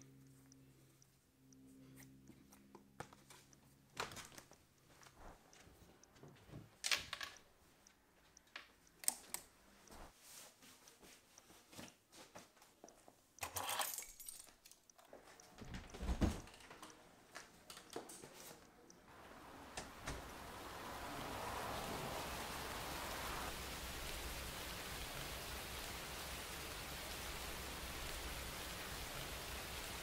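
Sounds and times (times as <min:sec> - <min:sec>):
small clicks: 0:06.8 - 0:10.0, 0:13.4 - 0:30.0.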